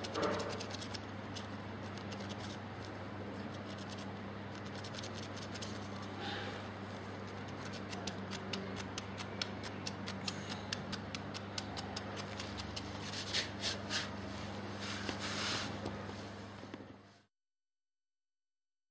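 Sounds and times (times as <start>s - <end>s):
kitten clicking and scratching: 0.0s - 6.2s, 7.0s - 14.1s
steady low hum: 0.0s - 17.3s.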